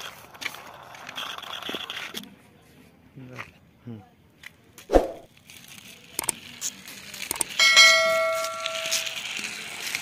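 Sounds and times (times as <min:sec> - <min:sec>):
short clicks: 0:06.2 - 0:06.4
bright bell ding: 0:07.6 - 0:09.1.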